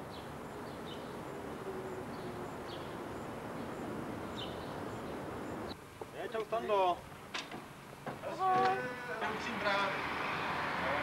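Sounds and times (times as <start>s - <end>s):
bird chirping: 0.0s - 5.8s.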